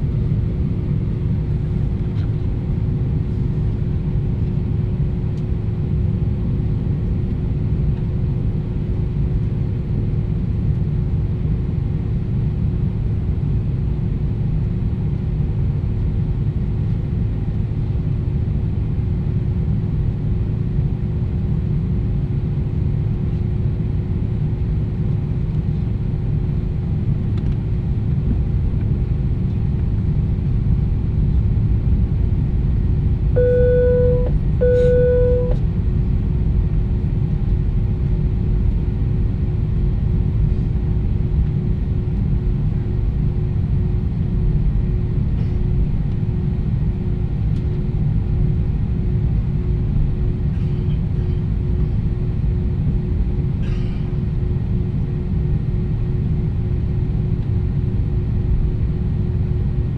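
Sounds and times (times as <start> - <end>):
jet engines idling rumble: 0.0 - 59.9
steady cabin hum: 32.8 - 35.6.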